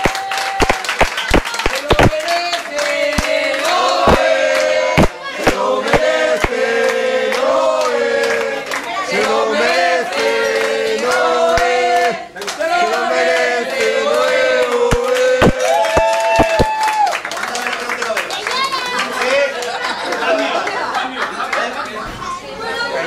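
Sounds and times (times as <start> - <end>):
group of people singing: 1.3 - 15.6.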